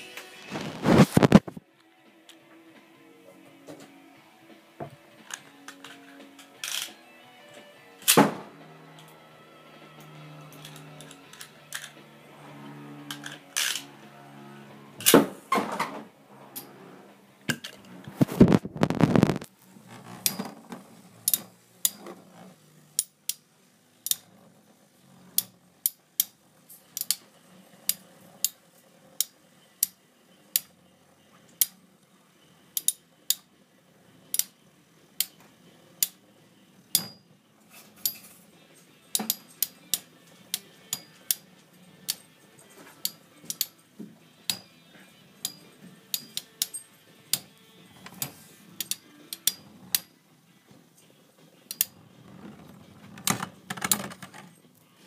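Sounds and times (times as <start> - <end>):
faint whirr of spinning tops: 8.7 - 15.1, 19.5 - 55.0.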